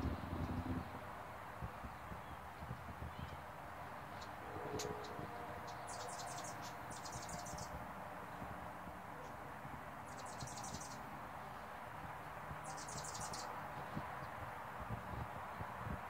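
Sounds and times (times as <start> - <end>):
hummingbird chattering: 4.2 - 7.7, 12.7 - 13.5.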